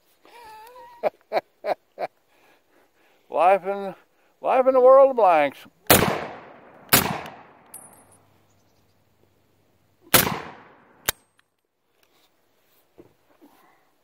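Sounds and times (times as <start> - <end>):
rifle shots with echo: 5.9 - 7.9, 10.1 - 11.2
sharp metallic clink: 7.0 - 8.3.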